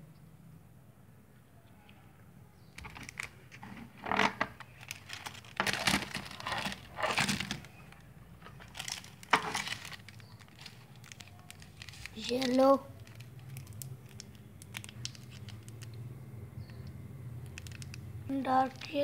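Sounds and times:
plastic packaging crinkling: 2.8s - 16.1s, 17.4s - 19.0s.

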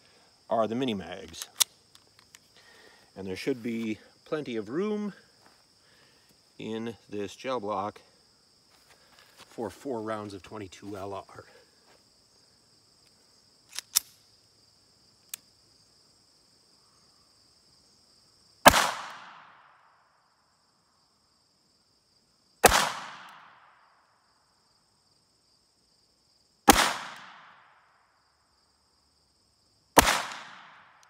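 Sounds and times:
crickets chirping: 0.0s - 31.0s
pistol shots: 18.7s - 19.5s, 22.6s - 23.5s, 26.7s - 27.6s, 30.0s - 31.0s.

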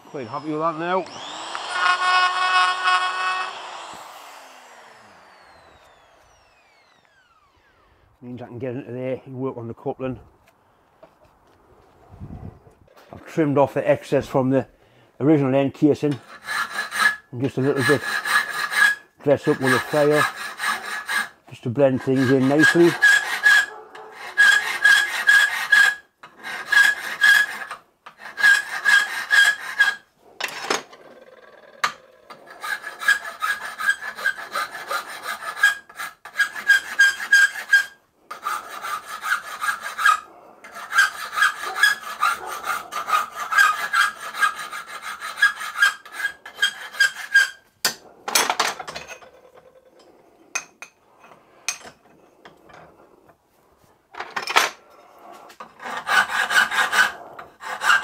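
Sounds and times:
hand file rasping on metal: 0.0s - 7.7s, 16.0s - 30.6s, 31.8s - 48.2s, 54.9s - 58.0s.

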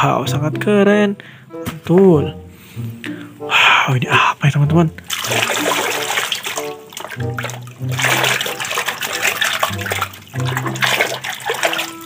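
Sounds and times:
background music with low notes: 0.0s - 12.0s
hand sloshing through soapy water: 5.0s - 12.0s.

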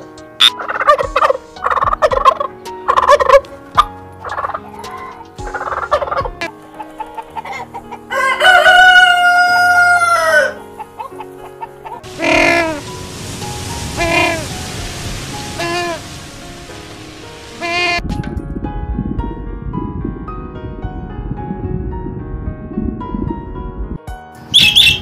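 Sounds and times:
soft background music: 0.0s - 25.0s
turkey gobbling: 0.4s - 4.6s, 5.5s - 12.8s, 24.6s - 25.0s
rooster crowing: 8.1s - 10.7s.

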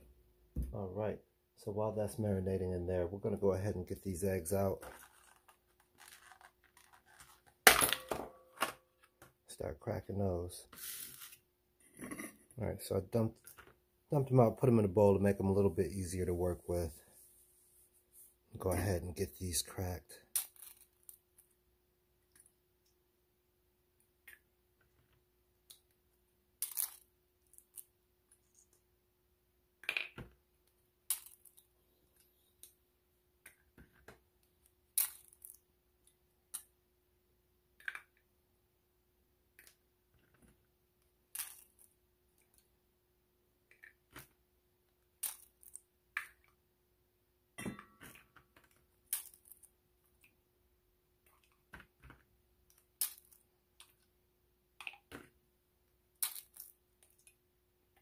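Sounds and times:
eggshells cracking against bowl: 56.2s - 57.2s.

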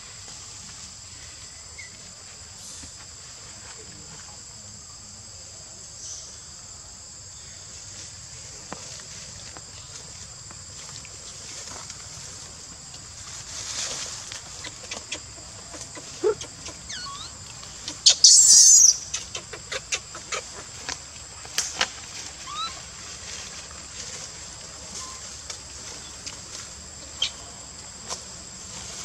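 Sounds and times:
high insect drone: 0.0s - 29.0s
short falling chirps: 18.0s - 19.2s.

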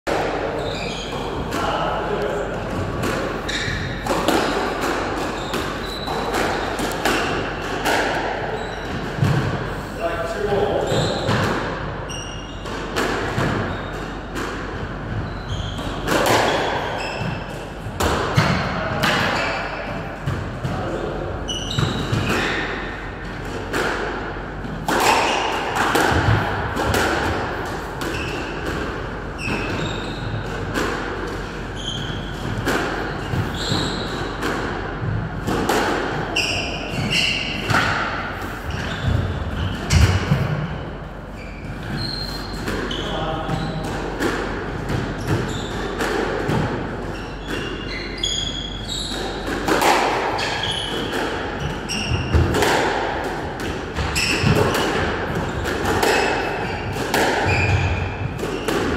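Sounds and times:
squash ball hitting rackets and walls: 0.1s - 58.9s
shoes squeaking on wooden floor: 0.5s - 1.4s, 3.4s - 4.1s, 5.2s - 7.2s, 8.5s - 9.1s, 15.2s - 17.5s, 29.3s - 30.4s, 31.7s - 32.4s, 33.1s - 34.2s, 38.7s - 40.1s, 41.3s - 43.8s, 45.2s - 46.0s, 55.5s - 58.7s.

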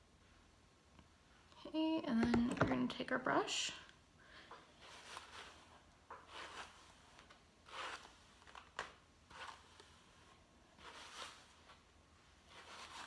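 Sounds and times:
brush swishing through hair: 4.8s - 8.5s, 9.3s - 13.0s.

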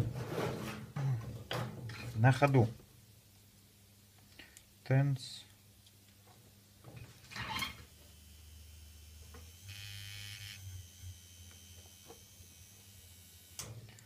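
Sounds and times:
tattoo machine humming: 7.6s - 13.7s.

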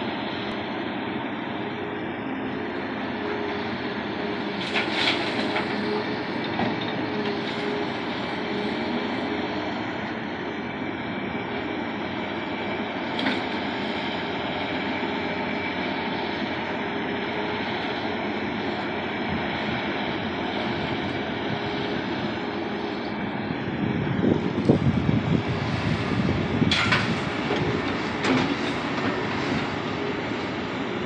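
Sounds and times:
bulldozer running: 0.0s - 31.0s
excavator digging sand: 0.0s - 31.0s.

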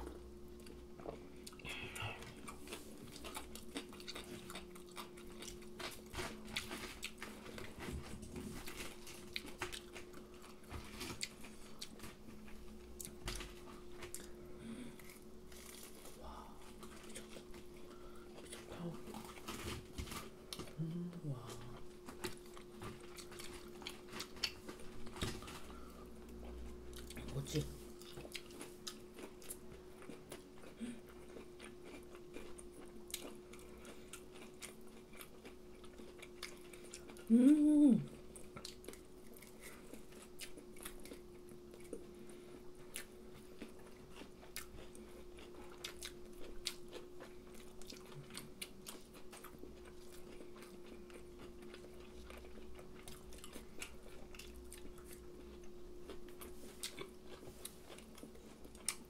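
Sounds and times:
chewing crunchy fried food: 0.0s - 59.0s
steady low hum: 0.0s - 59.0s
person humming: 20.6s - 21.8s, 37.2s - 38.2s.

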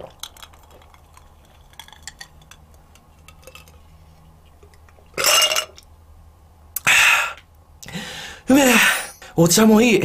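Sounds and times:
breathy ahh exhale: 6.8s - 9.1s.

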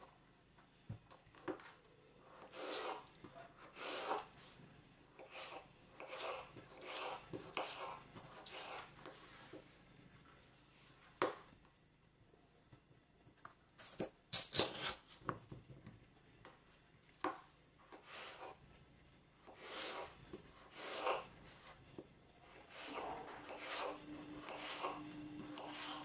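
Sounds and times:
knife cutting potatoes on wooden board: 2.3s - 4.3s, 5.2s - 9.2s, 19.4s - 21.3s, 22.5s - 26.0s
scraping and rubbing on board: 5.2s - 9.3s, 17.9s - 18.6s, 19.4s - 21.8s, 22.5s - 26.0s.

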